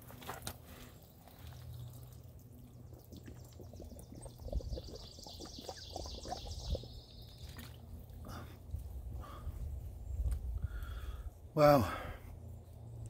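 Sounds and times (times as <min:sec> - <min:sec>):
person gulping water: 0:02.8 - 0:06.9.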